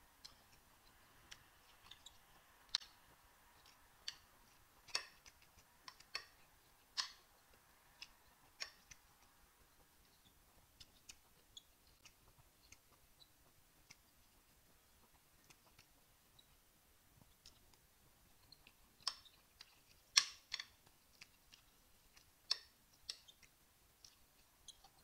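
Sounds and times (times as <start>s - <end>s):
wet chewing mouth clicks: 18.4s - 25.0s.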